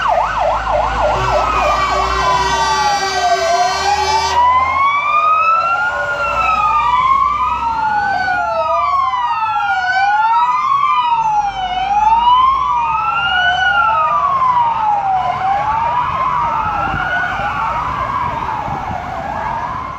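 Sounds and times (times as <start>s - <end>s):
heavy engine rumbling: 0.0s - 8.1s
wailing sirens: 0.0s - 19.9s.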